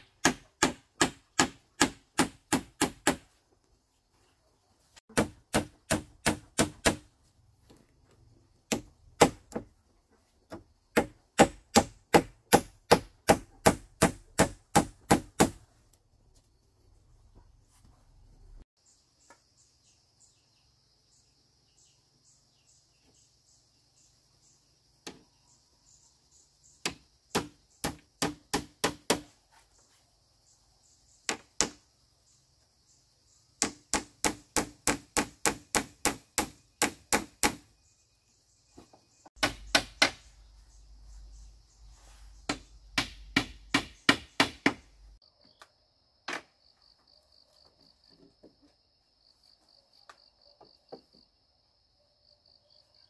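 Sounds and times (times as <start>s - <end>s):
hand tool striking bamboo: 0.0s - 3.3s, 5.1s - 7.1s
insects chirping: 0.0s - 53.0s.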